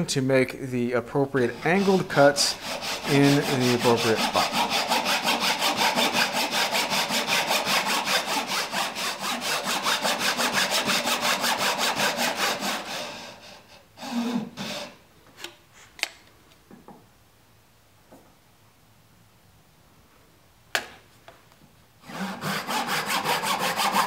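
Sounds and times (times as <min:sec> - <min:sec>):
hand saw cutting wood: 0:01.4 - 0:15.0, 0:22.0 - 0:24.0.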